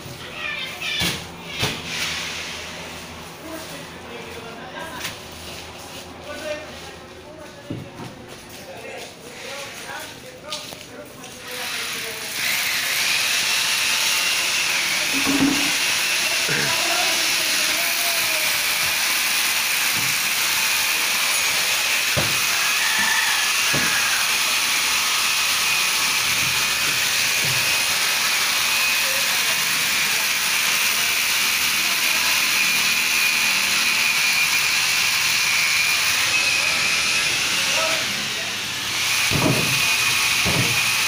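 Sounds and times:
power tool hissing and whining: 0:11.4 - 0:41.0
sharp knocks: 0:39.3 - 0:39.8, 0:40.4 - 0:40.8.

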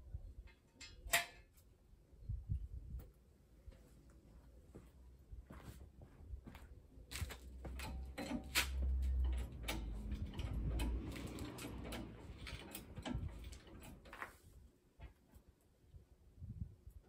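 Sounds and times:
metal jack stand clicks and knocks: 0:00.5 - 0:01.5.

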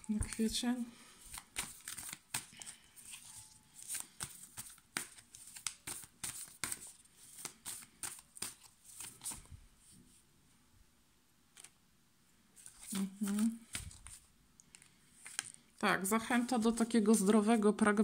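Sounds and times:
cards shuffling: 0:01.2 - 0:09.5, 0:11.5 - 0:11.8, 0:12.6 - 0:15.7, 0:16.3 - 0:17.6.

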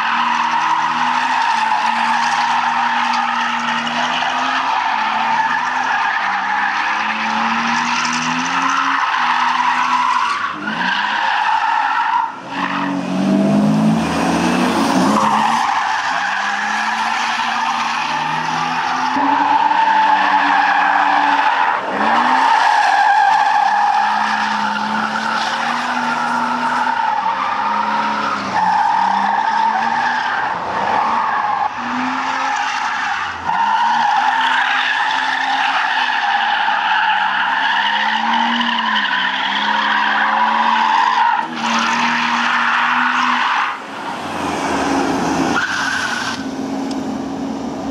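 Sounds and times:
car engine revving: 0:12.3 - 0:34.3.

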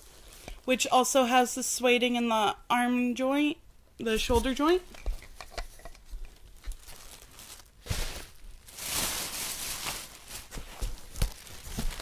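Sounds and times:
plastic wrapping crinkling: 0:05.1 - 0:12.0.

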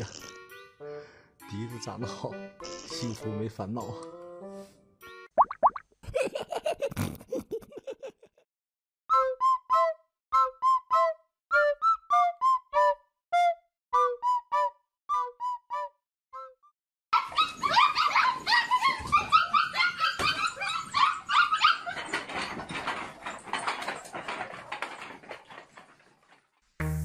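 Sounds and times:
puppies whining and yipping: 0:17.2 - 0:24.0.

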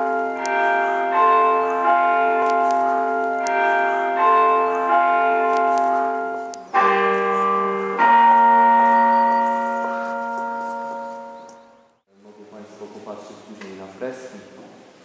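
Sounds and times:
church bells ringing: 0:00.0 - 0:12.1.

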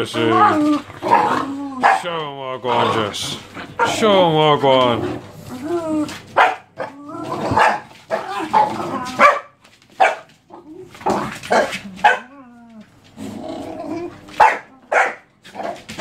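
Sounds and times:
dog whining: 0:00.2 - 0:02.0, 0:05.4 - 0:09.4, 0:10.5 - 0:15.2
dogs barking: 0:00.2 - 0:04.2, 0:06.2 - 0:12.5, 0:14.1 - 0:16.0.

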